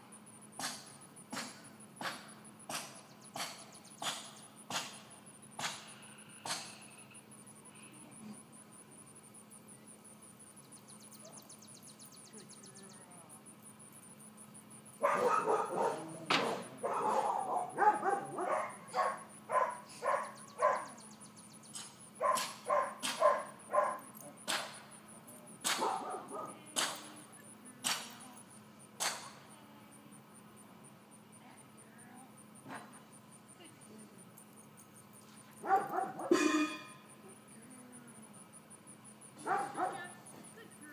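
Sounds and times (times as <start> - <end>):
high insect buzz: 0.0 - 40.9
puppy barking: 15.0 - 21.0, 22.2 - 24.1, 25.6 - 26.6, 35.6 - 36.6, 39.4 - 40.2.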